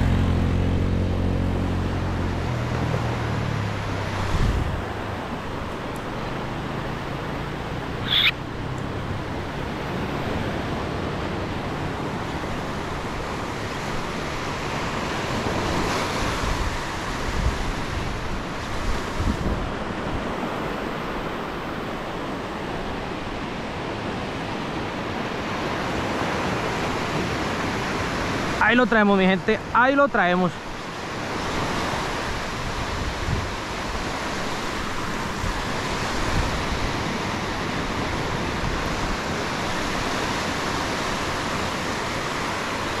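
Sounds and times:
ocean surf breaking on beach: 0.0 - 43.0
wind buffeting microphone: 2.3 - 6.7, 15.2 - 22.1, 31.3 - 43.0
brief sharp high sound: 8.0 - 8.4.

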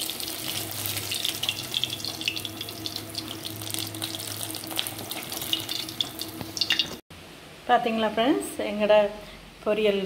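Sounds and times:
food sizzling in hot oil: 0.0 - 7.0.

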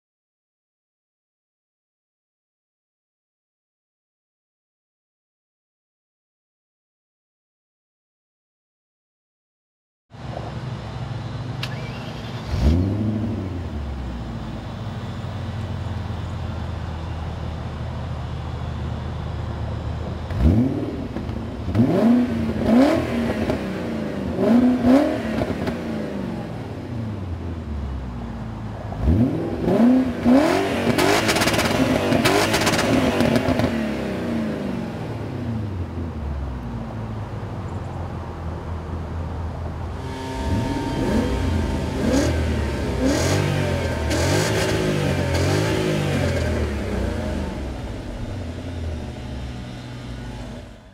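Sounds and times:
car exhaust idling and revving: 10.2 - 50.9
engine stuttering on rev limiter: 29.0 - 33.7, 39.9 - 50.9.

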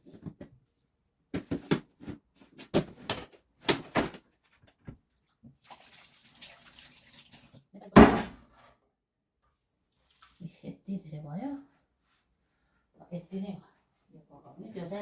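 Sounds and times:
water running from tap: 5.5 - 7.6, 9.9 - 10.5.

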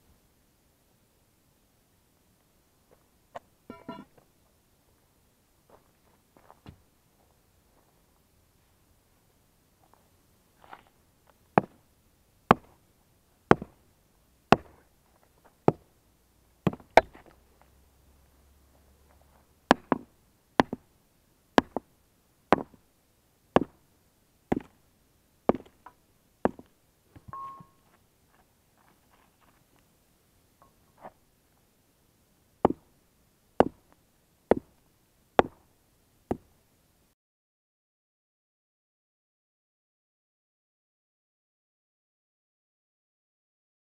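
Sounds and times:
hammer striking stone: 3.7 - 4.1, 13.5 - 13.7, 14.5 - 14.8, 21.6 - 21.8, 22.5 - 22.8, 35.4 - 35.6
sledgehammer striking stone: 3.7 - 4.1, 13.5 - 13.8, 14.5 - 14.8, 16.7 - 17.1, 19.7 - 20.8, 21.6 - 21.8, 22.5 - 22.8, 35.4 - 35.6.

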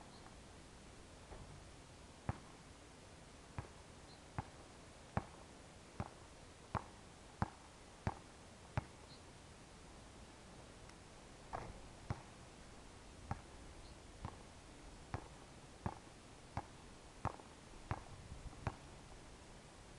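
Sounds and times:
basketball bouncing on hard court: 16.6 - 18.8.

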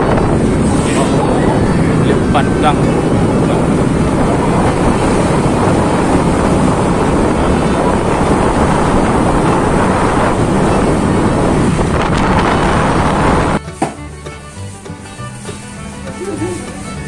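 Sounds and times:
wind rushing over microphone: 0.0 - 13.6
motorbike road and engine noise: 0.0 - 17.0.

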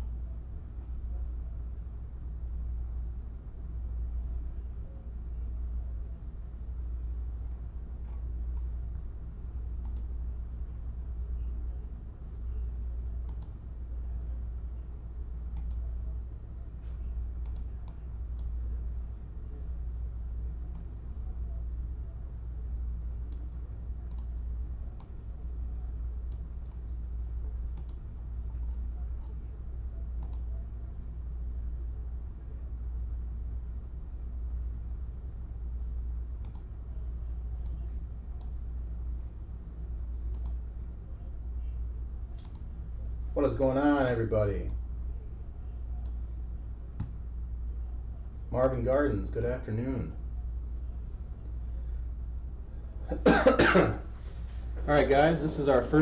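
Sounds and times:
steady low hum: 0.0 - 56.0
faint sharp clicks: 9.8 - 10.1, 13.2 - 13.6, 15.5 - 15.8, 17.4 - 18.5, 27.7 - 28.0, 36.4 - 36.7, 40.3 - 40.6, 42.3 - 42.7.

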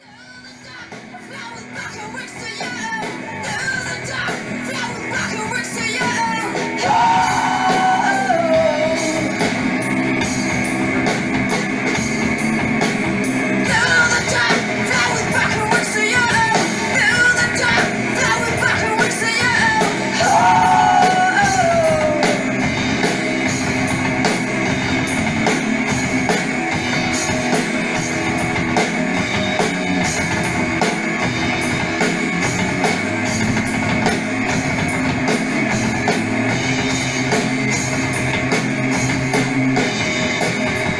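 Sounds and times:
person singing: 0.0 - 9.3, 13.6 - 22.6
rock music with drums and guitars: 0.0 - 40.9.

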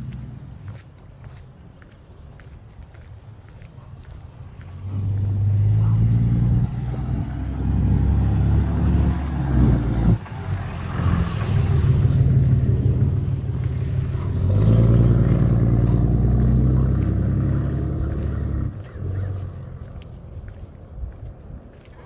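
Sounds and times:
vehicle engine running: 4.8 - 20.2.

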